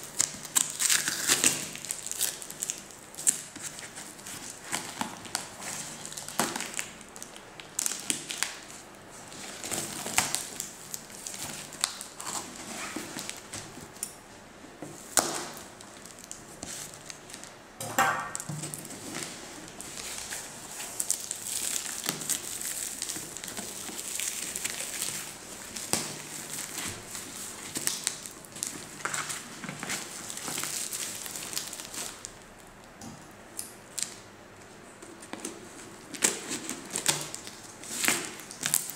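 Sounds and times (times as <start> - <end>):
tape ripping: 0.2 - 7.0.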